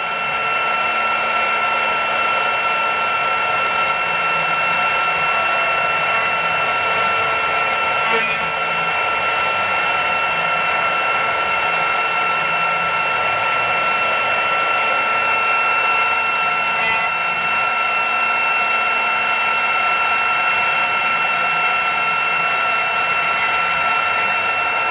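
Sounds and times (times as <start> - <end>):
router spindle whine: 0.0 - 24.9
wood cutting hiss: 8.0 - 9.3, 16.7 - 17.2.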